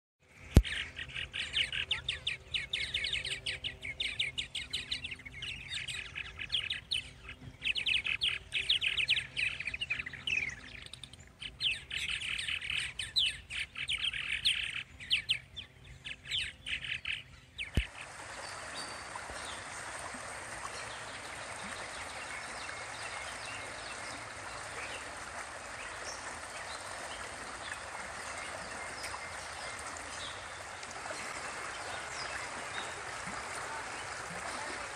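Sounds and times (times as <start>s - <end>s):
birds chattering: 0.6s - 34.9s
creek running over rocks: 17.0s - 34.9s.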